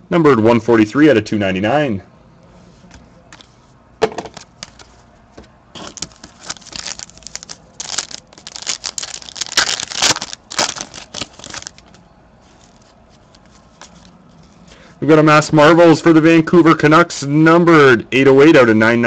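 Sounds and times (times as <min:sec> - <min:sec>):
foil pack tearing: 0:05.8 - 0:12.0.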